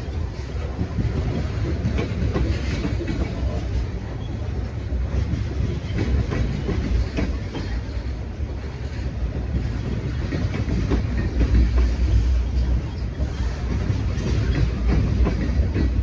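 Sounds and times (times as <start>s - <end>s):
train wheels rumbling on rail: 0.0s - 16.0s
wheels clicking over rail joints: 5.1s - 8.2s, 8.9s - 16.0s.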